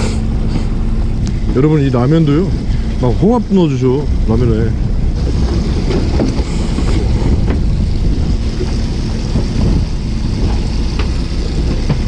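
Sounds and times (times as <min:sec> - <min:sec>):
boat engine rumble: 0:00.0 - 0:12.0
sea: 0:00.0 - 0:12.0
wind buffeting microphone: 0:00.0 - 0:12.0.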